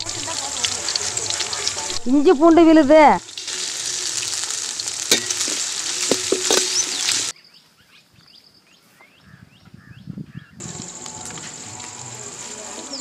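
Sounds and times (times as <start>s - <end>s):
paste sizzling in hot oil: 0.0s - 7.3s, 10.6s - 13.0s.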